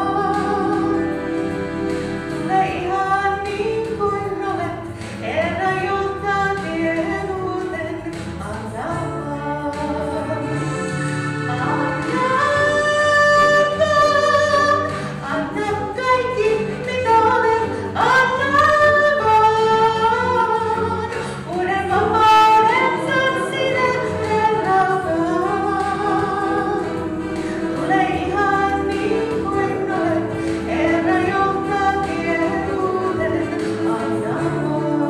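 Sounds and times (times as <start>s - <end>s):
instrumental accompaniment: 0.0s - 35.0s
woman singing into microphone: 0.0s - 35.0s.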